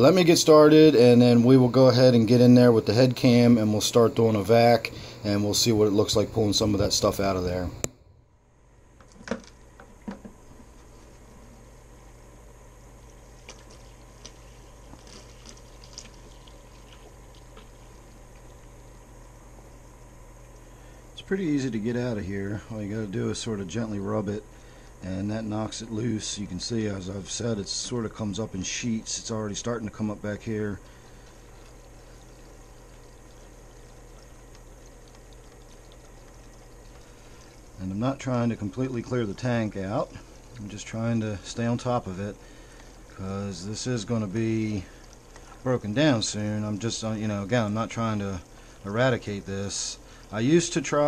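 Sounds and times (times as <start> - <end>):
steady low hum: 0.0 - 51.0
water pouring into bucket: 13.1 - 19.3, 30.4 - 51.0
water splashing into bucket: 30.8 - 40.9.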